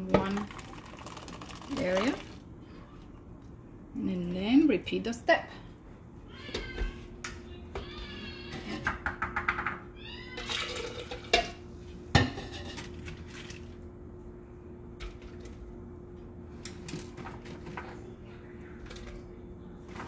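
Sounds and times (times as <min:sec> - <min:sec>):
steady low hum: 0:00.0 - 0:09.1, 0:09.8 - 0:20.0
water pouring into blender jar: 0:00.2 - 0:02.4.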